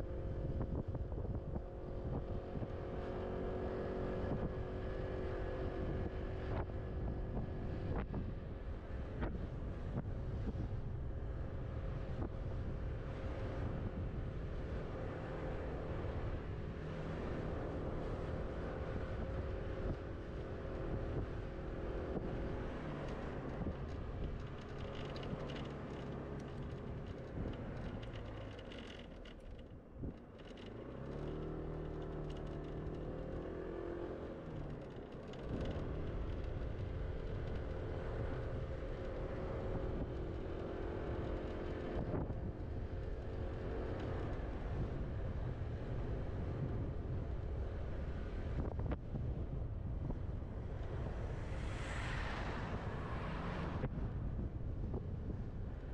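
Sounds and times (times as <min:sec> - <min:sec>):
road and wind rumble: 0:00.0 - 0:55.9.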